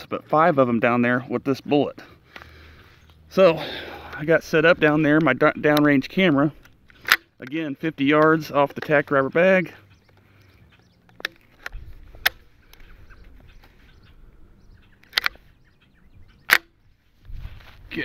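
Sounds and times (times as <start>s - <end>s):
rifle action clicking: 5.2s - 7.6s, 10.1s - 12.9s, 15.0s - 15.4s, 16.4s - 16.8s.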